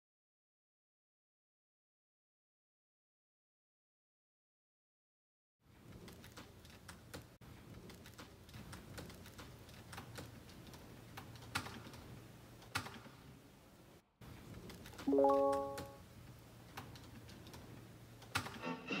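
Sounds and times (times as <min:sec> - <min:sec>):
laptop keyboard typing: 0:07.9 - 0:13.1.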